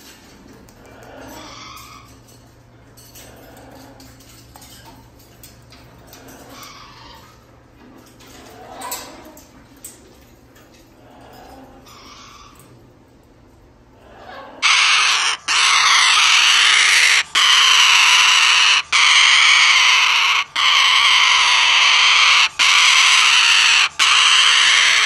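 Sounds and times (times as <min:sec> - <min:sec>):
cockatoo screeching: 0:01.0 - 0:02.2, 0:06.3 - 0:07.4, 0:11.5 - 0:12.7, 0:14.1 - 0:25.0.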